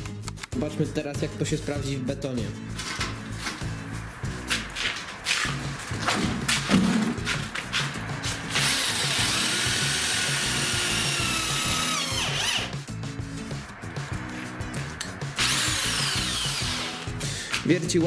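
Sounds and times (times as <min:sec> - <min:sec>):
background music with steady beat: 0:00.0 - 0:18.0
drill boring into concrete: 0:08.5 - 0:12.8, 0:15.4 - 0:17.4.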